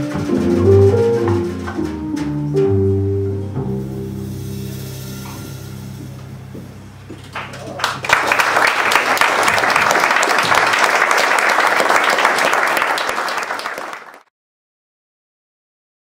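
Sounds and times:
jazz band low note: 0.0s - 8.2s
audience applauding: 7.3s - 14.3s.

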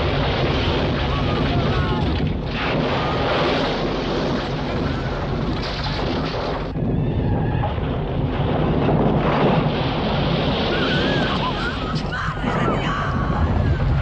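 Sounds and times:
debris crashing and falling: 0.0s - 12.3s
earthquake rumble: 0.0s - 14.0s
people crying and screaming: 10.7s - 14.0s.

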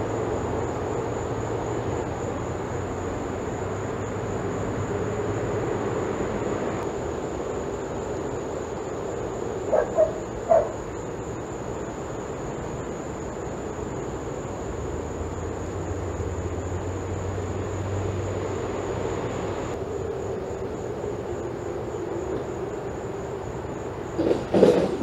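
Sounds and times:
steady background hiss: 0.0s - 25.0s
dog barking: 9.7s - 10.8s.

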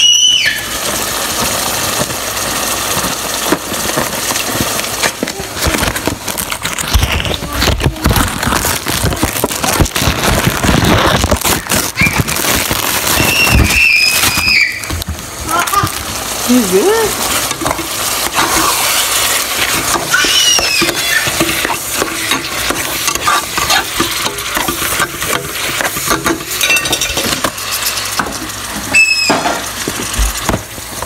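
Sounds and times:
meat sizzling in a frying pan: 0.0s - 31.0s
short high-pitched squeal: 28.9s - 29.4s.

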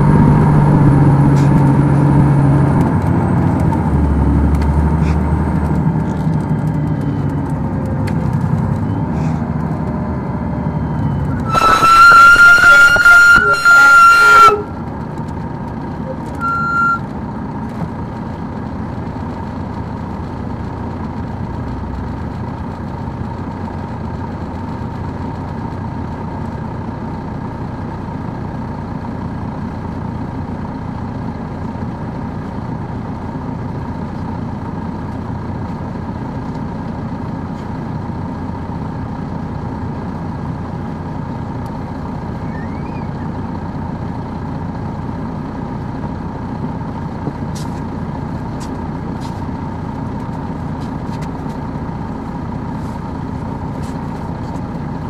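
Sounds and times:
diesel engine running: 0.0s - 55.0s
short beep: 10.9s - 14.7s, 16.1s - 17.1s.

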